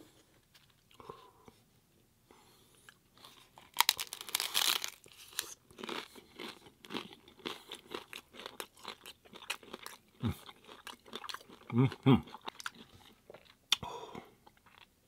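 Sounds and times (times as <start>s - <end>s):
chewing crunches: 2.9s - 13.6s
crunching taco shell: 3.6s - 10.0s.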